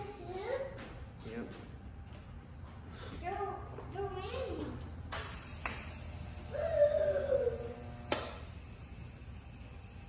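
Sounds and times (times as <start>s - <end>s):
faint low welder hum: 4.5s - 10.0s
welder click: 8.0s - 8.4s.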